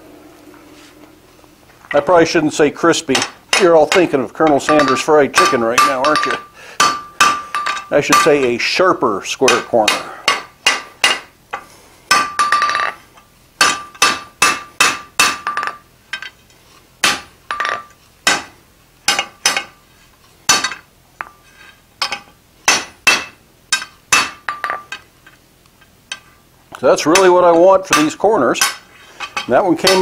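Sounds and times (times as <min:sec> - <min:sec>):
hammer striking steel on anvil: 0:03.1 - 0:08.6, 0:09.5 - 0:11.3, 0:12.1 - 0:12.9, 0:13.6 - 0:15.8, 0:17.0 - 0:18.5, 0:19.1 - 0:19.8, 0:20.5 - 0:21.4, 0:22.0 - 0:25.0, 0:27.0 - 0:30.0.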